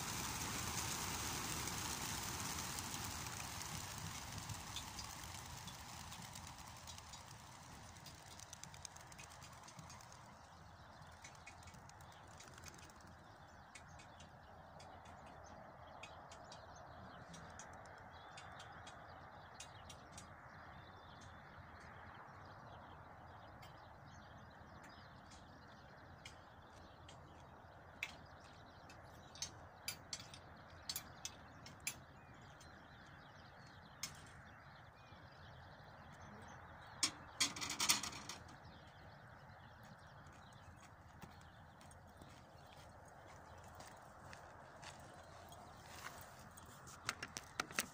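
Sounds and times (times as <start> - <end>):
faint steady hiss: 0.0 - 12.8.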